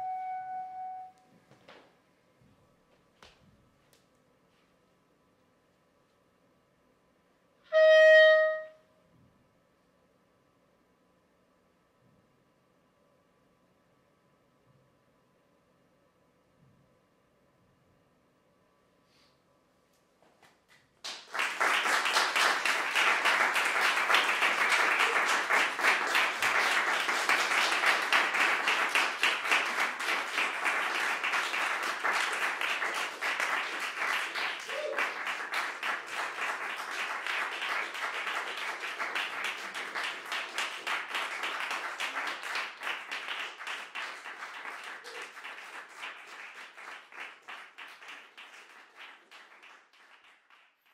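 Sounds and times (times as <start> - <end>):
audience applauding: 21.0 - 50.9.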